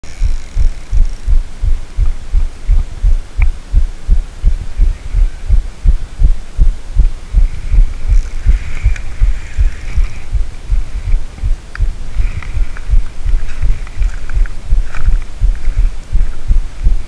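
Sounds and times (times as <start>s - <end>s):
low thumping of cranked reel: 0.1s - 2.2s.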